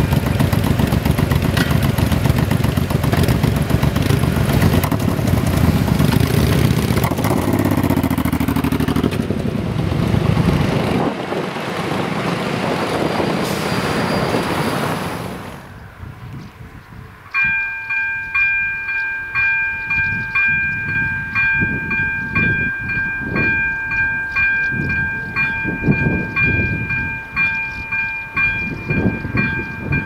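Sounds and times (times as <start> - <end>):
motorcycle engines revving: 0.0 - 13.4
car engines passing: 0.0 - 17.4.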